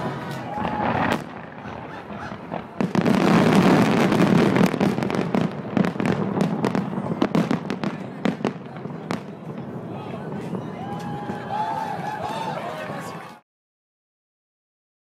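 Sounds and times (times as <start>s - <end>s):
firework bang: 0.0s - 11.8s
volley of firework bursts: 0.0s - 13.3s
crackling firework pops: 0.3s - 9.7s.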